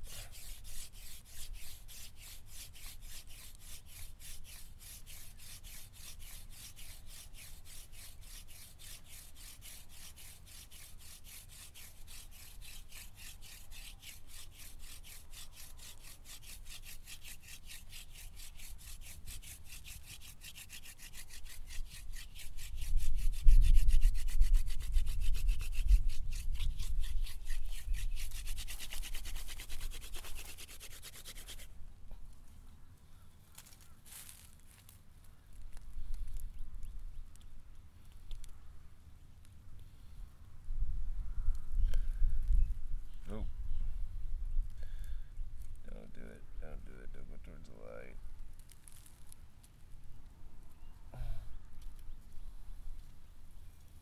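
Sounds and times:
wooden spindle rubbing in socket: 0.3 - 31.7.

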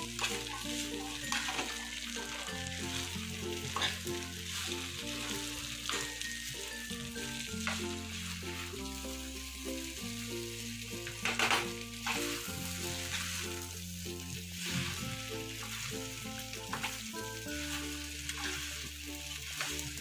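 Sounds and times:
metal spatula scraping pan: 0.0 - 6.0, 14.5 - 20.0
background tune with low notes: 0.0 - 20.0
noodles sizzling in a frying pan: 0.0 - 20.0.

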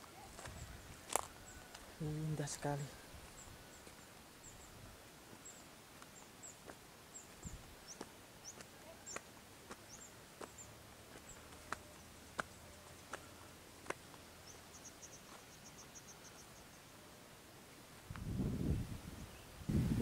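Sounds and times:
small birds chirping: 0.0 - 19.8.

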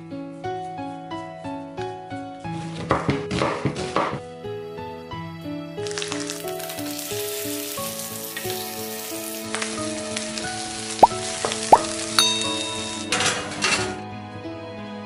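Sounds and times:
background music: 0.0 - 15.0
meat sizzling in oil: 5.8 - 13.1
short chime: 12.2 - 13.2.

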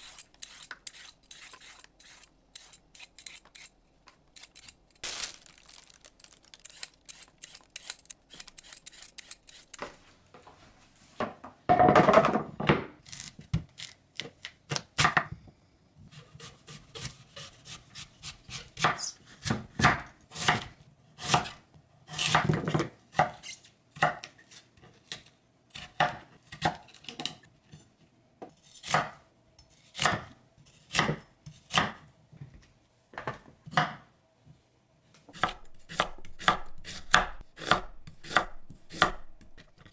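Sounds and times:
vegetable peeler scraping: 0.0 - 9.9
knife slicing radish on wooden board: 35.3 - 39.7.

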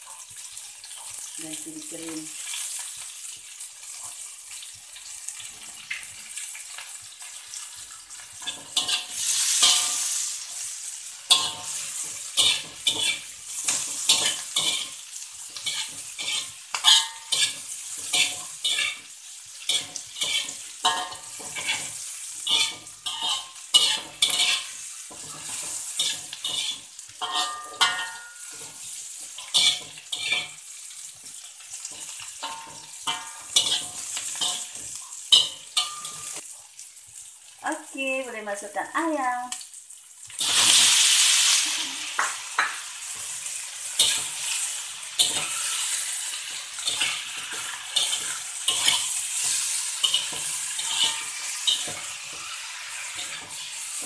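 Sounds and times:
aromatics sizzling in hot oil: 0.0 - 54.0
metal spatula scraping a wok: 8.1 - 36.4, 43.2 - 54.0.

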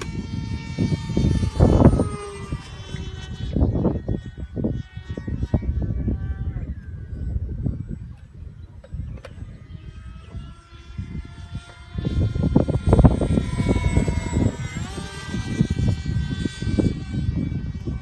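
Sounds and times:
model jet electric motor whining: 0.0 - 18.0
wind rumble on microphone: 0.0 - 18.0.

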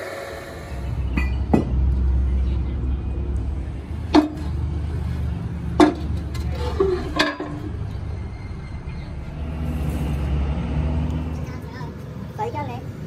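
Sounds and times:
steady low rumble: 0.3 - 13.0
sharp metal knocks: 1.1 - 1.8, 4.1 - 4.6, 5.7 - 8.1.

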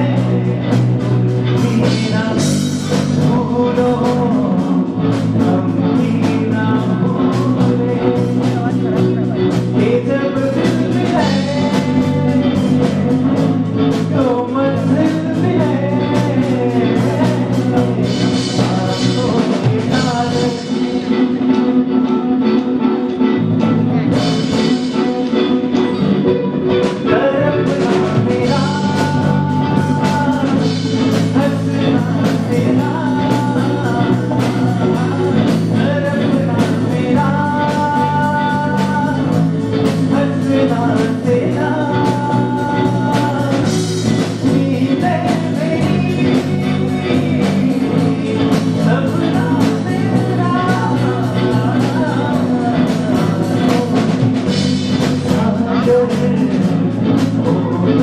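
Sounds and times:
live rock band playing: 0.0 - 58.0
man singing: 0.0 - 58.0.

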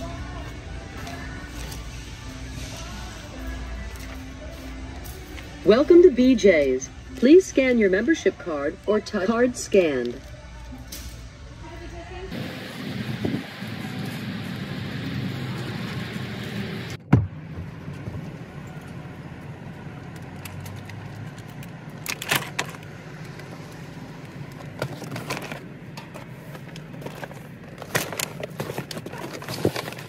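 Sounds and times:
outdoor background hum: 0.0 - 30.0
packages knocking and rattling: 24.6 - 30.0.

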